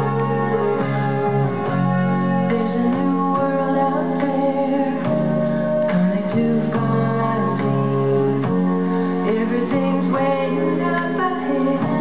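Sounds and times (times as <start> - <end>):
keyboard accompaniment: 0.0 - 12.0
person singing: 0.0 - 12.0.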